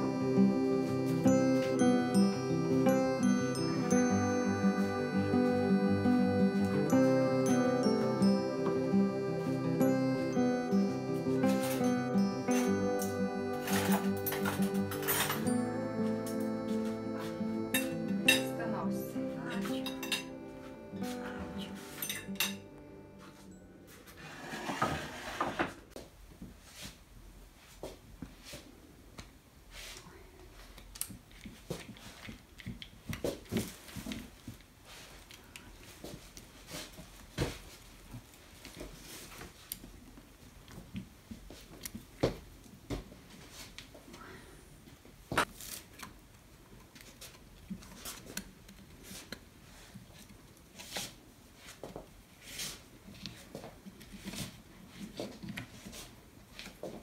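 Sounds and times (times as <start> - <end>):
plates clattering on a table: 17.8 - 18.5, 19.6 - 20.3, 22.0 - 22.6, 24.4 - 25.8.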